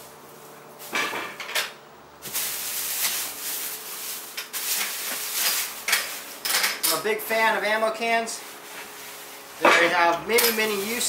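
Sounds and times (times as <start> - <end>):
plastic wrap crinkling: 2.2 - 6.5, 7.2 - 11.0.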